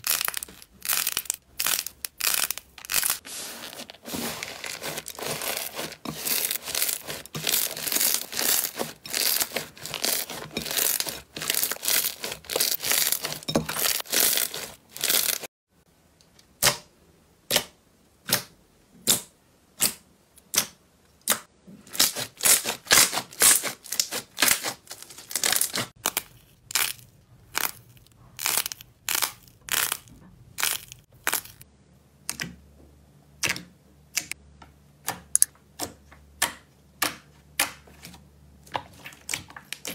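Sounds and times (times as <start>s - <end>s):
crunchy slime crackling: 0.0s - 15.5s, 21.9s - 31.6s.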